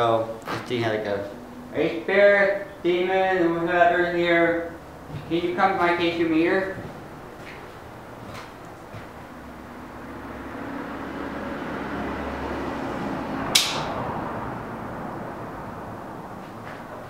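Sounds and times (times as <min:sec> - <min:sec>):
sharp knock: 0:13.6 - 0:14.0.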